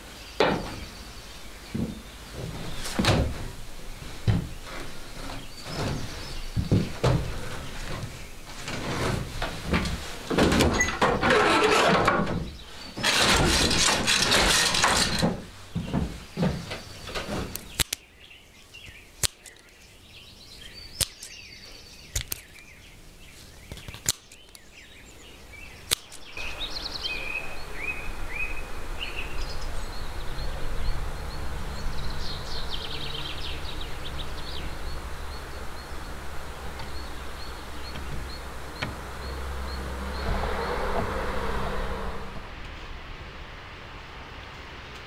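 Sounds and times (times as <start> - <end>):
low wind rumble: 0.0 - 19.1, 24.8 - 45.0
birds chirping: 0.0 - 42.4
wooden loom knocking: 4.2 - 17.4.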